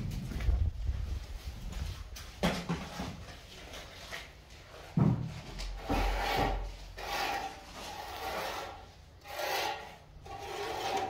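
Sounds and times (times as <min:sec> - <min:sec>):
rasping scrapes on gritty surface: 0:05.8 - 0:11.0.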